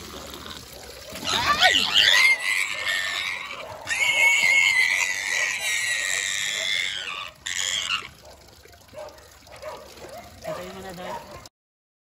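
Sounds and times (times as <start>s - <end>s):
pig squealing: 0.0s - 8.2s.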